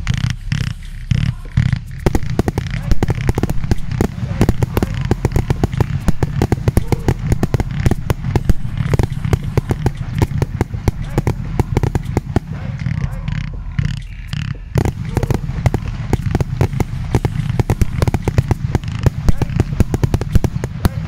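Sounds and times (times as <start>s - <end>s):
fireworks cracking and popping: 0.0s - 21.0s
low rumble: 0.0s - 21.0s.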